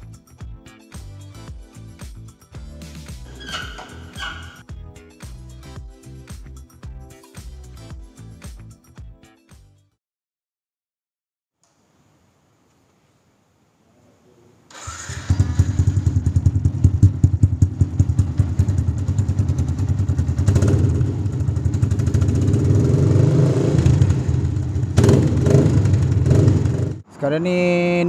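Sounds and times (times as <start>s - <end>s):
motorcycle engine idling: 14.9s - 22.9s.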